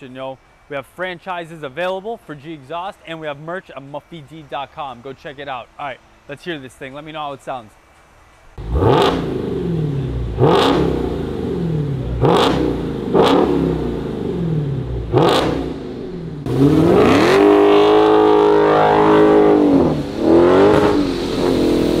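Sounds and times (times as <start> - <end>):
car accelerating hard: 8.6 - 22.0
car engine revving: 8.6 - 22.0.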